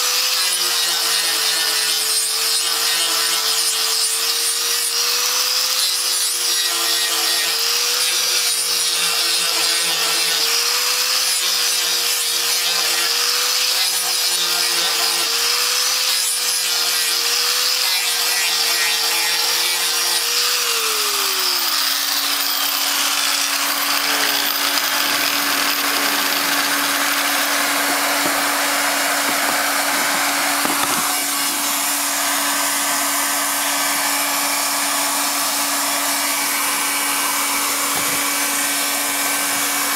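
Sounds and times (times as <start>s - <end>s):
angle grinder whine: 6.5s - 39.9s
hot-air gun blowing hiss: 20.0s - 33.3s.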